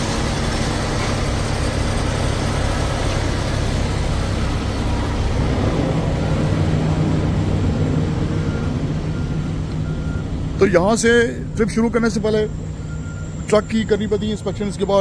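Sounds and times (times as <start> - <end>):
truck diesel engine idling: 0.0 - 15.0.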